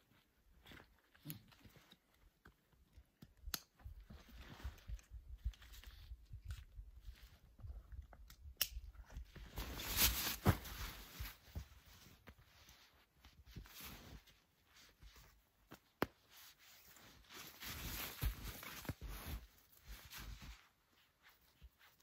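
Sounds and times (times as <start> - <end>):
fabric rustling and crunching: 9.4 - 22.0.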